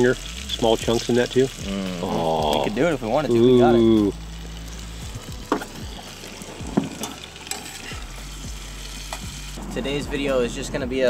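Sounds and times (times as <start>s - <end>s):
potatoes sizzling in a pan: 0.0s - 9.6s
spatula scraping a pan: 6.8s - 8.1s.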